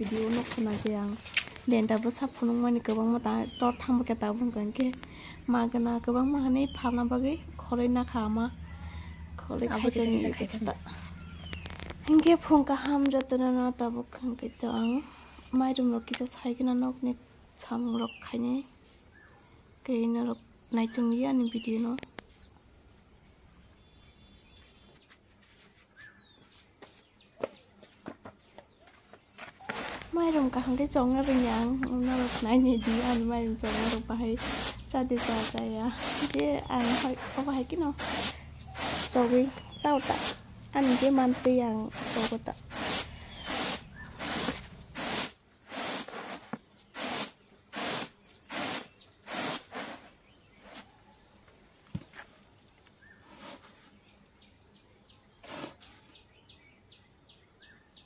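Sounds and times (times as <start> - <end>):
bird chirp: 1.7 - 17.0, 17.6 - 19.6, 20.2 - 45.8, 50.0 - 58.0
insect high-pitched buzzes: 29.4 - 51.5.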